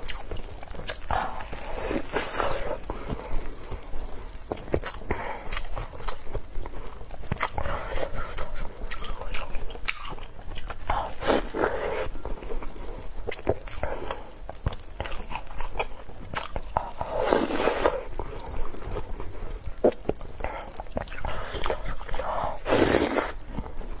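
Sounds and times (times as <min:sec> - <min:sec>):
biting into soft snack: 0:00.0 - 0:24.0
wet chewing and lip smacking: 0:00.0 - 0:24.0.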